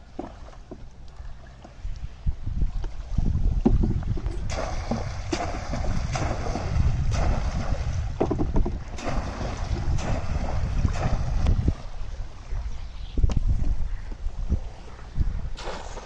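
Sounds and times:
wind rumble on microphone: 1.2s - 16.0s
fishing trap splashing into water: 4.4s - 7.8s, 8.9s - 11.4s.

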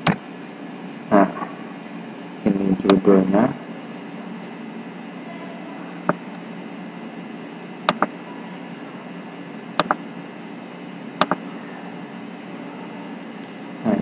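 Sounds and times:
low hum and hiss: 0.0s - 14.0s
computer mouse button clicks: 7.9s - 8.1s, 9.8s - 10.0s.

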